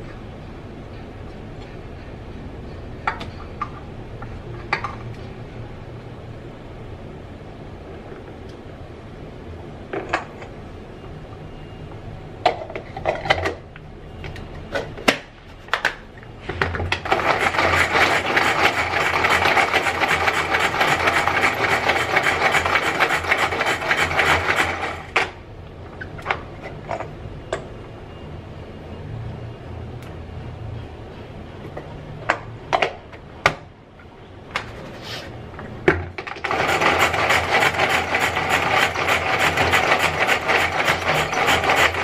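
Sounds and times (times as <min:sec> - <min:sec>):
food chopper ratcheting whirr: 0:17.0 - 0:25.4, 0:36.2 - 0:42.0.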